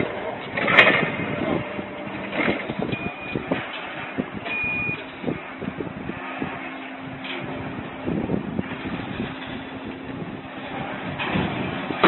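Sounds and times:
factory background din: 0:00.0 - 0:12.0
short high beeps: 0:04.5 - 0:05.0.

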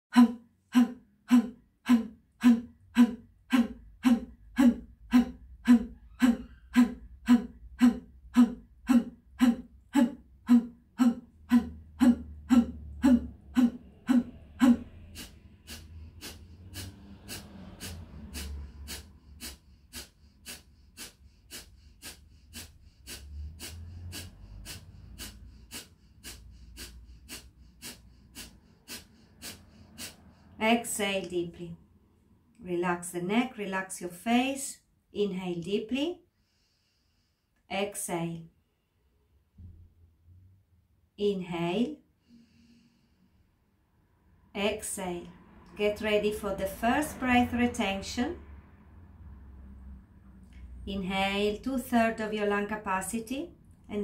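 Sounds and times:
rapid forceful exhalations: 0:00.1 - 0:30.9.

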